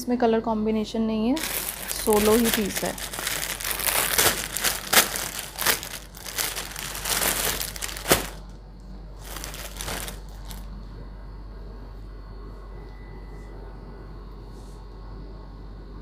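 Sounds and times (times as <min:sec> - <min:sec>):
low steady hum: 0:00.0 - 0:16.0
clothes rustling and crackling: 0:01.4 - 0:08.5, 0:09.2 - 0:10.7.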